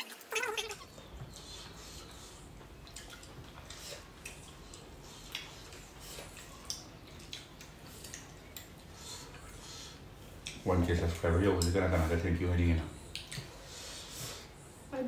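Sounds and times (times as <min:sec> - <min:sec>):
chewing and mouth smacks: 0:00.0 - 0:11.8, 0:13.0 - 0:13.8.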